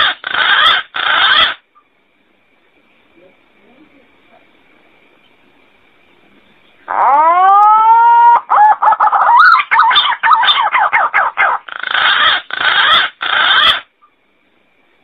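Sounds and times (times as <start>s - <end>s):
warbling wavering whistles: 6.9s - 13.9s.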